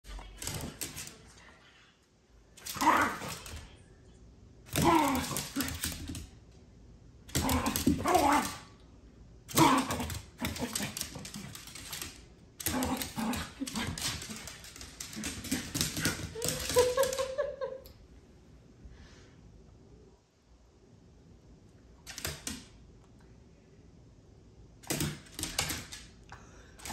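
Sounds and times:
small dog play-growling: 2.6 - 3.7, 4.7 - 6.2, 7.3 - 8.7, 9.5 - 17.0
claws clicking on wooden floor: 9.5 - 17.4.

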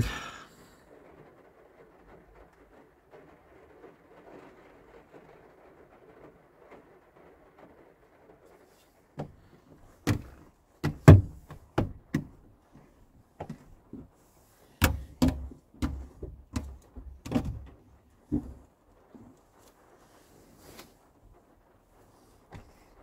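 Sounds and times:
gear knocking and clunking: 9.2 - 14.1, 14.8 - 19.3.

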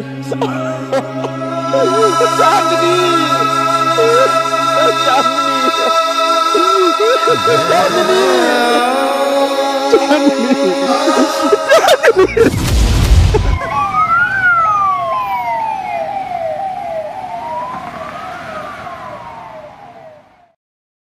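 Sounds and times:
music: 0.0 - 13.0
ambulance siren wailing: 0.0 - 20.6.

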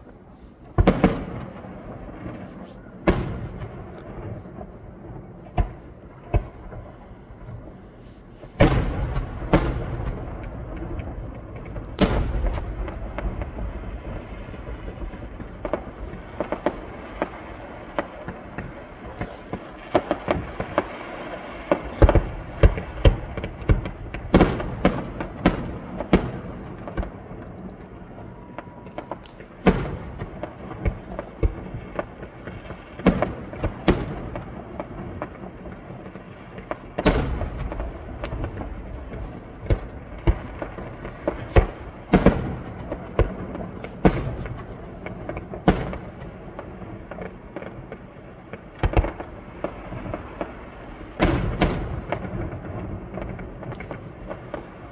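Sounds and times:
fireworks booming: 0.0 - 54.9.

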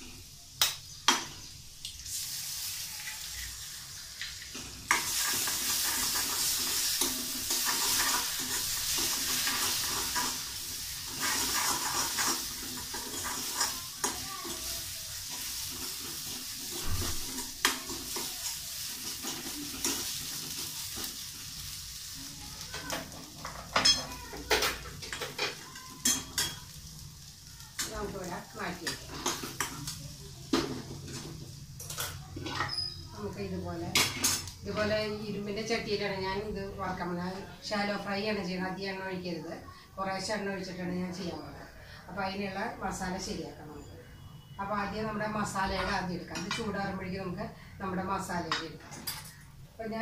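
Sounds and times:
egg sizzling in hot oil: 0.0 - 39.0
spoon scraping pan: 4.5 - 21.5, 27.8 - 33.1.

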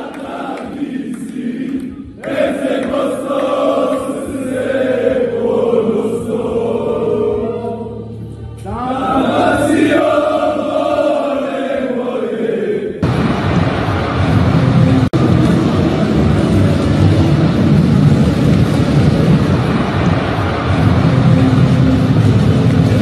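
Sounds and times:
group singing in unison: 0.0 - 8.1, 8.8 - 14.0.

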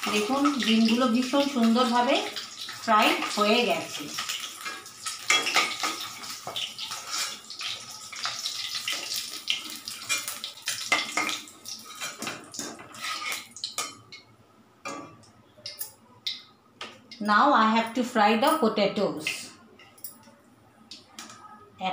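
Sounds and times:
eggs sizzling in hot oil: 0.0 - 14.3
spoon scraping pan: 4.2 - 14.0.

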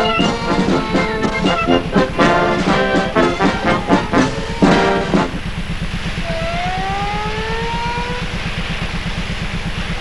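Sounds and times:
brass chord: 0.0 - 5.6
rising clear tone: 0.0 - 8.2
boat engine throbbing: 0.0 - 10.0.

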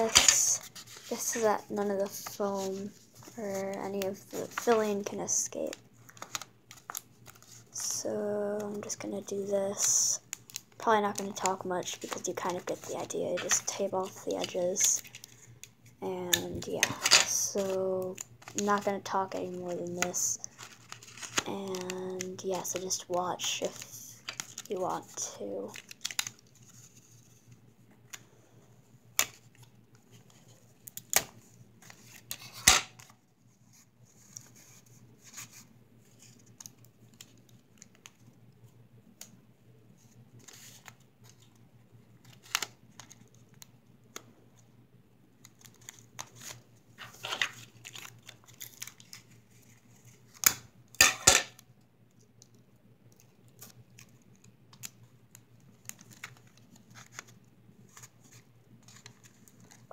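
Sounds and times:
paper rustling: 0.0 - 5.4, 16.8 - 28.2, 53.1 - 59.9.

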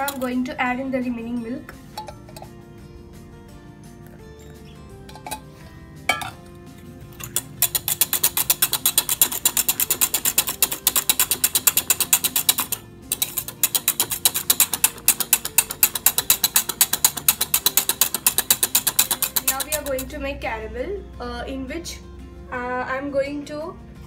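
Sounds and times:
whisk clicking against metal pan: 0.0 - 0.4, 7.2 - 20.2.

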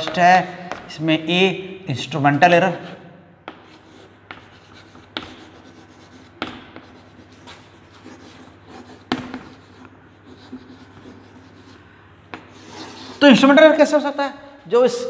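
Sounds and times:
chalk tapping board: 0.0 - 1.0, 3.5 - 13.2
chalk scratching on blackboard: 3.5 - 13.4.

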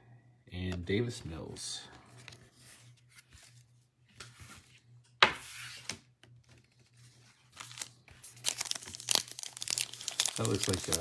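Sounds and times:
cards and wrapper rustling: 6.4 - 11.0
foil wrapper ripping: 7.6 - 11.0.

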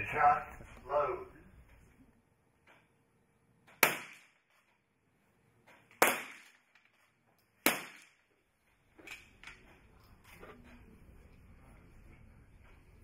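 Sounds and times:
pistol shots cracking: 3.8 - 4.5, 6.0 - 6.7, 7.6 - 8.3.

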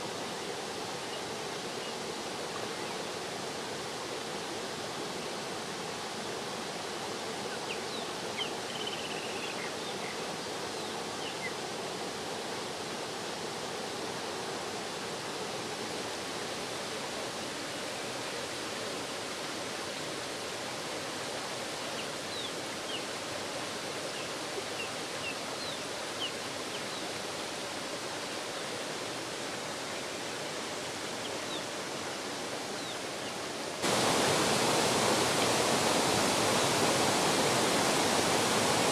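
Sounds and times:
water rushing over weir: 9.7 - 38.9.

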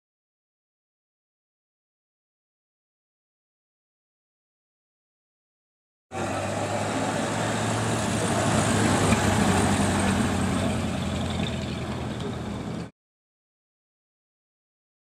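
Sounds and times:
pickup truck engine passing: 6.1 - 12.9.

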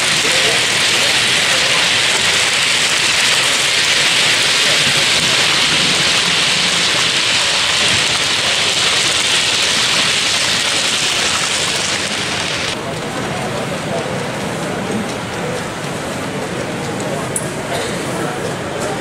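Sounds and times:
loud rushing hiss: 0.0 - 12.8.

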